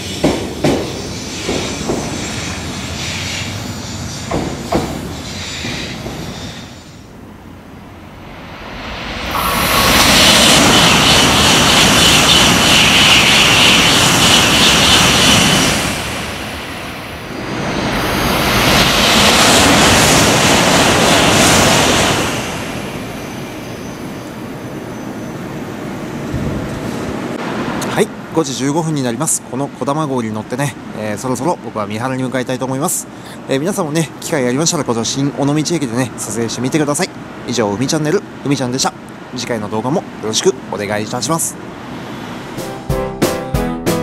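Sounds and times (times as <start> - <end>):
high-speed train passing: 0.0 - 44.0
steady hum: 6.7 - 28.3.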